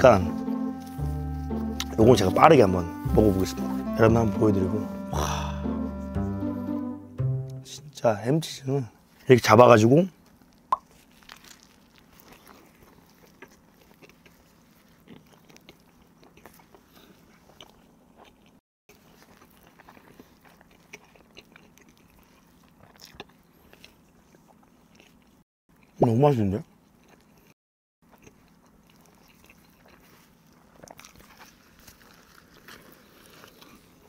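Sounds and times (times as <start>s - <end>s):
person chewing toast: 10.2s - 26.0s, 26.6s - 34.0s.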